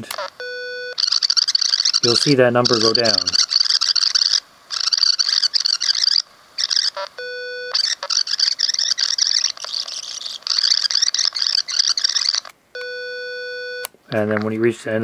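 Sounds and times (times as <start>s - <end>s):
electronic beep: 0.4s - 13.9s
cassette rewinding: 0.9s - 7.1s, 7.7s - 12.5s.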